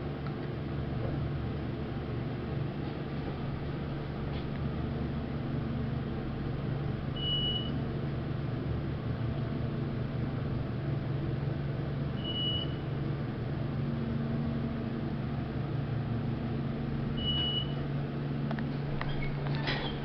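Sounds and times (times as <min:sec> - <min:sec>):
elevator hum: 0:00.0 - 0:20.0
short high beeps: 0:07.2 - 0:07.7, 0:12.2 - 0:12.8.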